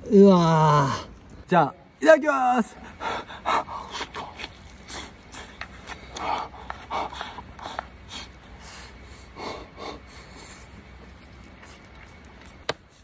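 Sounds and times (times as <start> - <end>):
breathy puffs and mouth noises: 2.9 - 12.3.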